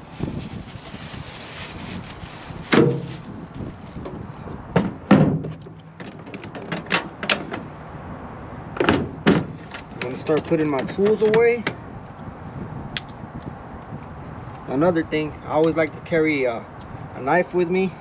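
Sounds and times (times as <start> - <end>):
plastic case thumps and clunks: 2.7 - 3.2, 4.8 - 7.5.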